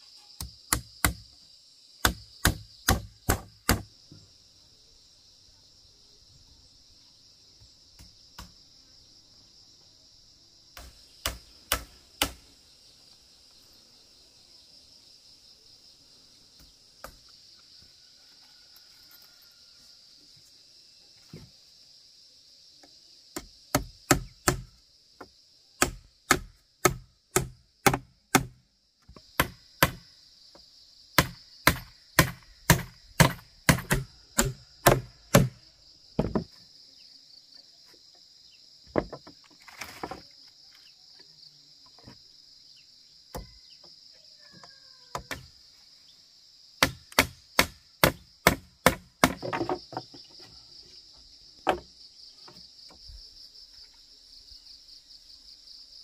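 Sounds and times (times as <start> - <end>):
insects droning: 0.0 - 56.0
hammer driving nails into wood: 2.0 - 3.9, 31.2 - 35.6, 46.8 - 49.8.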